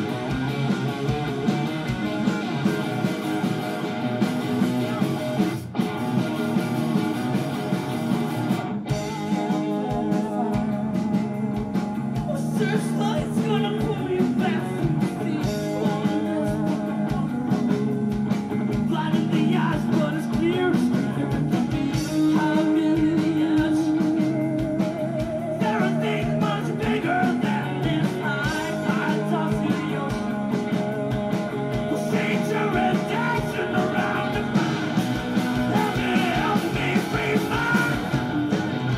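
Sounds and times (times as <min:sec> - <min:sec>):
rock band playing: 0:00.0 - 0:38.9
man singing into microphone: 0:12.3 - 0:17.9, 0:18.8 - 0:24.4, 0:25.6 - 0:30.5, 0:31.9 - 0:34.6, 0:35.7 - 0:38.1.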